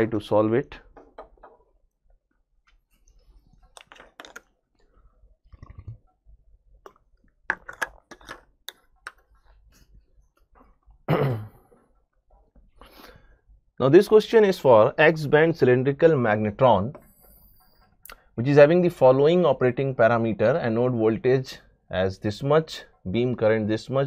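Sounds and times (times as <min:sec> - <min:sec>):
swallowing sounds: 0:05.4 - 0:06.1.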